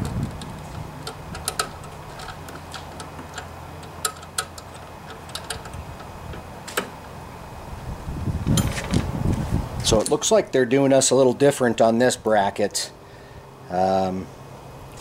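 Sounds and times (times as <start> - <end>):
small metal clicks: 0.0 - 6.9.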